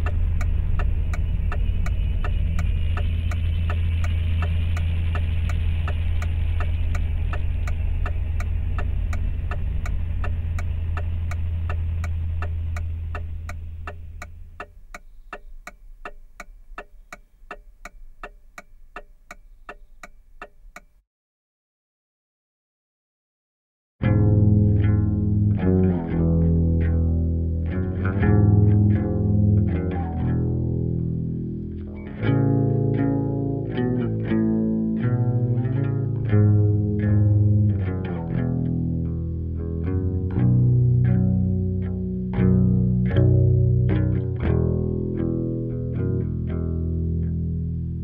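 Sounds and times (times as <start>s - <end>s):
car engine idling: 0.0s - 20.8s
turn signal ticking: 0.0s - 21.0s.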